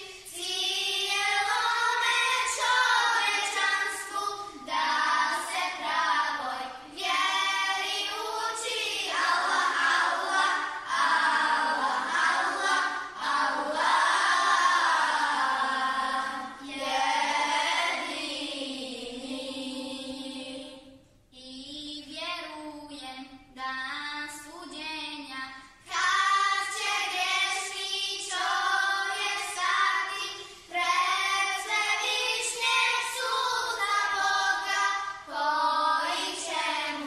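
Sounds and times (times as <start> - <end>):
children's choir singing a hymn: 0.0 - 22.5, 23.9 - 37.0.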